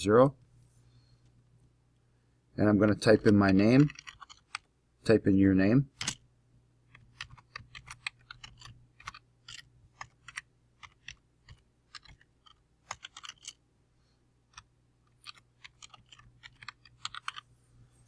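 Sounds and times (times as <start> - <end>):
typing on computer keyboard: 3.2 - 4.7, 6.9 - 13.6, 15.1 - 17.4.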